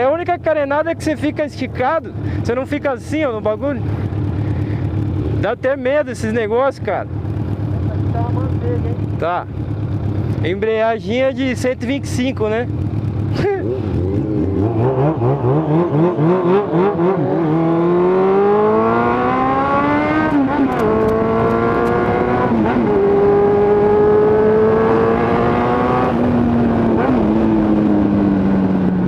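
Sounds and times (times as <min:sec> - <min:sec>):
motorcycle engine accelerating: 0:00.8 - 0:29.0.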